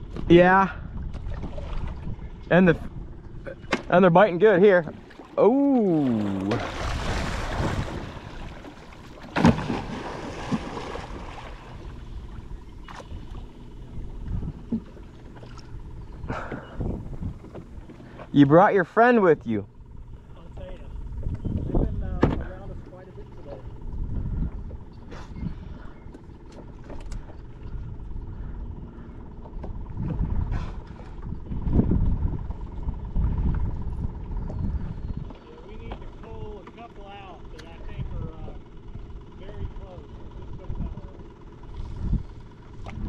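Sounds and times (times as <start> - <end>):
wind rumble on microphone: 0.0 - 3.7, 6.2 - 18.2, 20.0 - 36.6, 37.7 - 43.0
low lapping water: 0.0 - 43.0
water against kayak hull: 0.9 - 18.6, 41.2 - 43.0
water rushing and splashing: 4.7 - 12.3.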